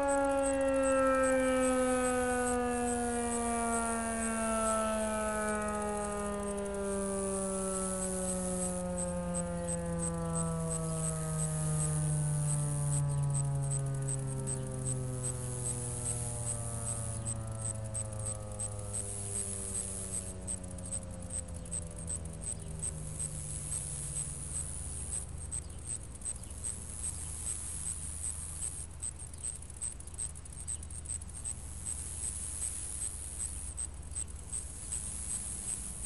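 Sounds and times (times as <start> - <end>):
siren winding down: 0.0 - 34.6
insects chirping: 0.0 - 36.0.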